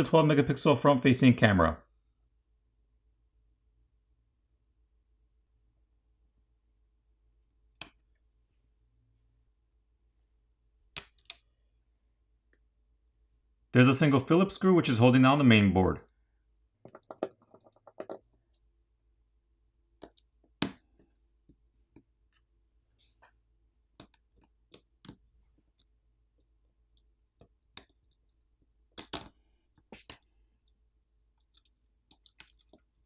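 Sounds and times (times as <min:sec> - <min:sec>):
small clicks and taps: 0:19.9 - 0:22.5, 0:23.1 - 0:33.0.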